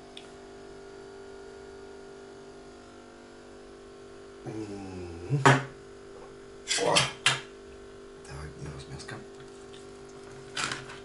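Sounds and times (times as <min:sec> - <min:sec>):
electrical hum: 0:00.0 - 0:11.0
man making low voiced sound: 0:04.4 - 0:05.4.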